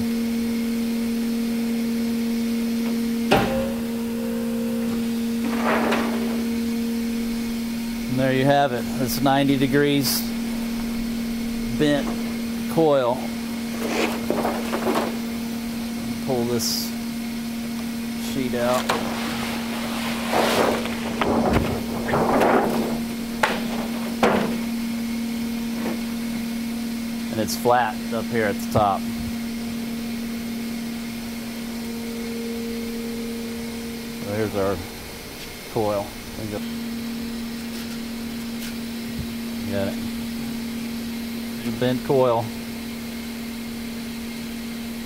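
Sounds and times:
machine humming: 0.0 - 45.0
sharp knocks: 2.9 - 3.9, 21.1 - 24.7
sharp metallic clank: 3.3 - 6.9
sheet rustling and scraping: 4.9 - 7.2, 13.3 - 16.0, 18.6 - 25.0.

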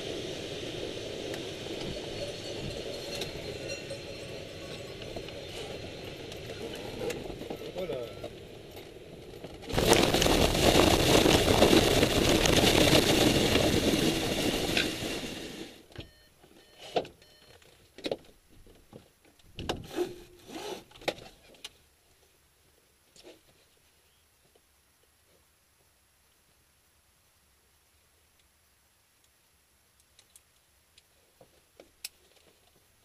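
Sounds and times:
glider rumbling across grass: 0.0 - 15.8.

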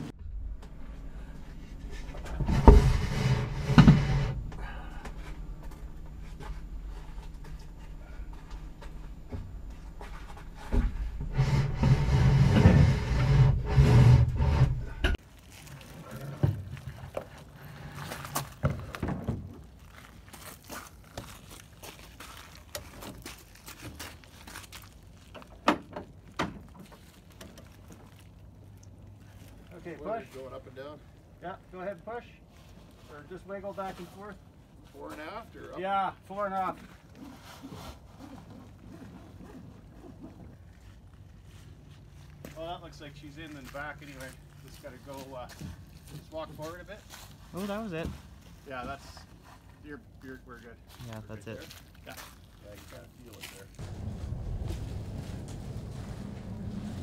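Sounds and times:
low rumbling noise: 0.0 - 15.2, 53.7 - 57.0.

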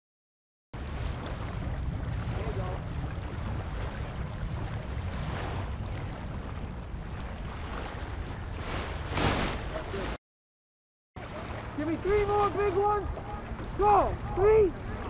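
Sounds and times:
wind rumbling on microphone: 0.8 - 10.1
rushing water: 0.8 - 10.2, 11.2 - 15.0.

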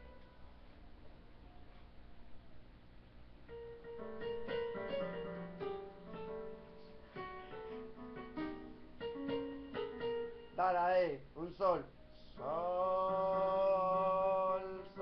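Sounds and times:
electronic keyboard notes: 3.5 - 10.9.

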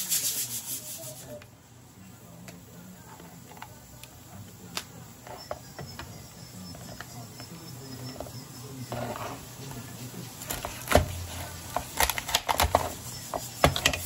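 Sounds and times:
crab shell clicking and cracking: 11.7 - 12.9.

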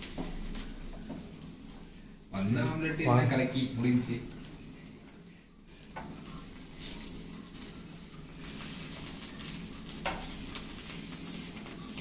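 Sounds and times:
omelette sizzling in oil: 0.0 - 12.0.

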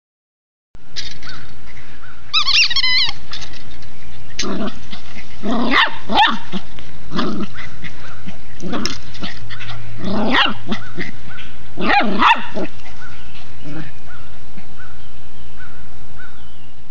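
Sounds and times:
puppy high wavering call: 2.3 - 3.2
puppy barking: 5.5 - 6.6, 9.6 - 12.8.

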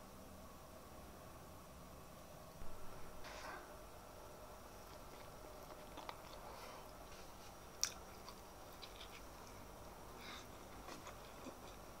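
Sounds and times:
chewing with wet mouth sounds: 4.8 - 12.0.

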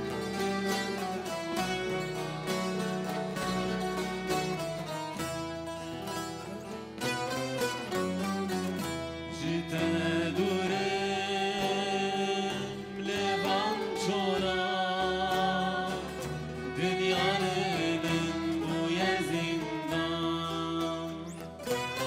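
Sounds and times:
hand drum: 0.0 - 10.0
lutes strumming and plucking: 0.0 - 22.0
violin: 0.0 - 22.0
person singing: 9.1 - 22.0.

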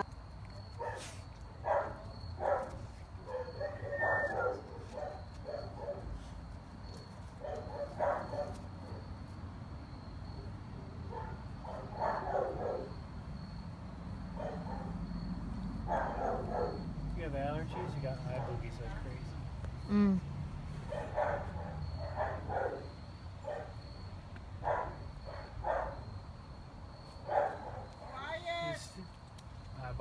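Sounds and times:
dog barking: 0.8 - 6.2, 7.4 - 9.1, 11.1 - 13.0, 14.3 - 15.1, 15.8 - 16.9, 17.6 - 19.0, 20.8 - 23.8, 24.6 - 26.1, 27.2 - 28.2.

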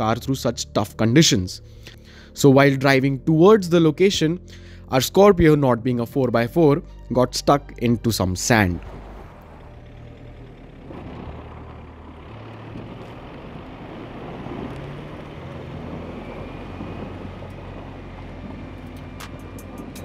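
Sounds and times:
car engine revving: 8.5 - 20.0
wheels spinning in sand: 8.8 - 20.0.

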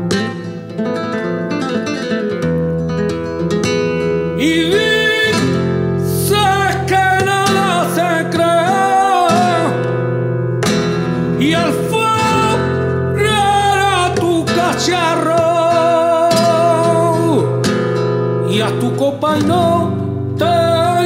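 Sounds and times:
acoustic guitar: 0.0 - 21.0
person singing flamenco: 0.0 - 21.0.

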